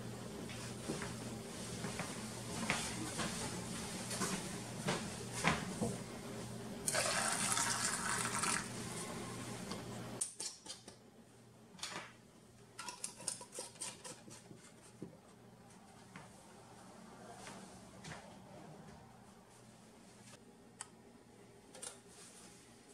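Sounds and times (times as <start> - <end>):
brine pouring into glass jar: 6.9 - 8.7.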